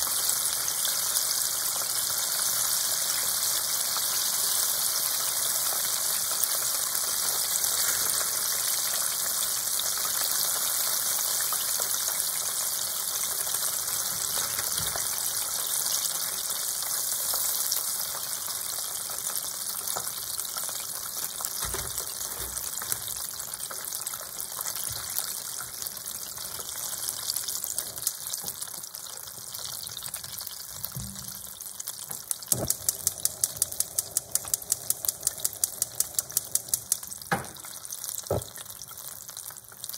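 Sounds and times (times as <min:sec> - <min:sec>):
chicken deep-frying in oil: 0:00.0 - 0:39.9
sharp crackling ticks: 0:32.1 - 0:37.3.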